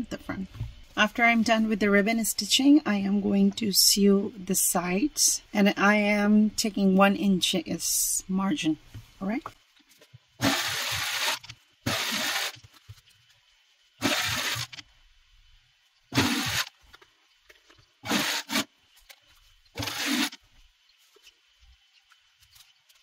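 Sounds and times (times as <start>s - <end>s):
sewing machine stitching: 10.4s - 12.6s, 14.0s - 14.8s, 16.2s - 16.7s, 18.0s - 18.7s, 19.8s - 20.4s.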